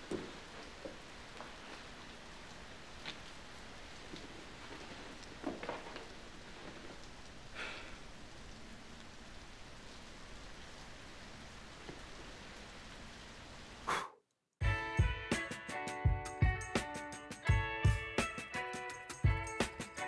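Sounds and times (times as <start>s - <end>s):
rain falling: 0.0s - 14.0s
man blowing out candles: 13.8s - 14.2s.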